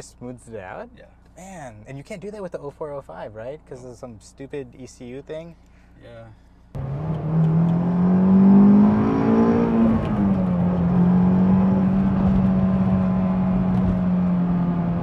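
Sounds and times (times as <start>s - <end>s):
car engine accelerating from inside: 6.8s - 15.0s.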